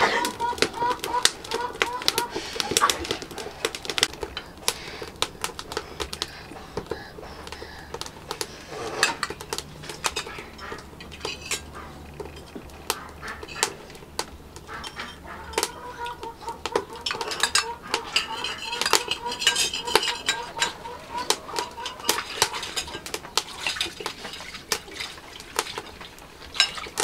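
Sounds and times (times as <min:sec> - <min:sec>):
spoon clinking against a bowl: 0:17.0 - 0:20.8.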